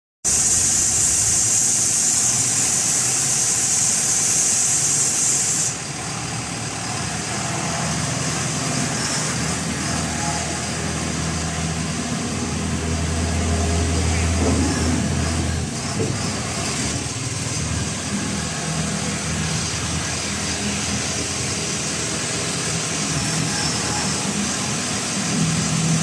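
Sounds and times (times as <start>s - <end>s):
steady high hiss: 0.3s - 6.8s
concrete mixer engine humming: 0.3s - 26.0s.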